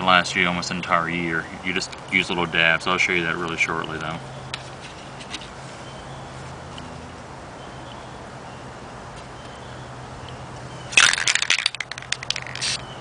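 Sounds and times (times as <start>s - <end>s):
spray can ball rattling: 10.9s - 12.9s.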